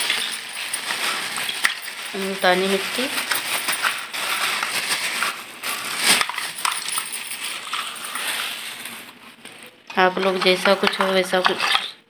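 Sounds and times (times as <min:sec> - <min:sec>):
clay shards clinking and crunching: 0:00.0 - 0:09.0
plastic bag rustling: 0:00.0 - 0:11.9.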